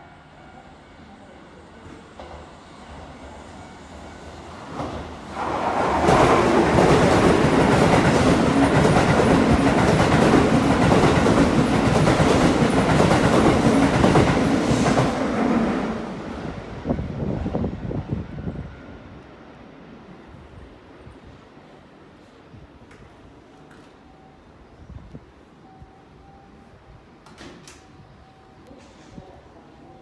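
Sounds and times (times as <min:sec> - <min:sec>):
electric train passing: 0:00.0 - 0:22.4.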